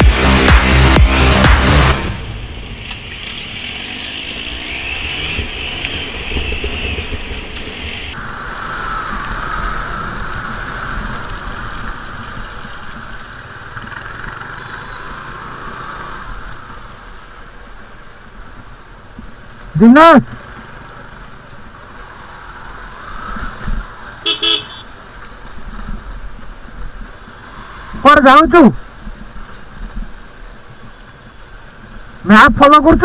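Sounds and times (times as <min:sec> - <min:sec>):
car engine rumble: 0:00.0 - 0:14.4
steady road hiss: 0:00.0 - 0:33.0.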